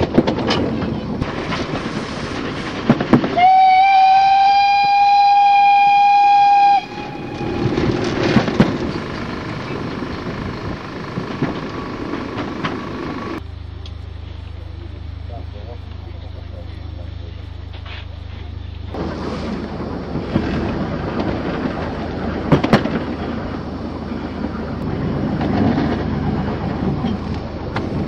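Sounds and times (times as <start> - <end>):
low steady hum: 0.0 - 28.0
train running: 0.0 - 28.0
steam locomotive whistle: 3.4 - 8.1
wheels clicking: 6.2 - 14.0.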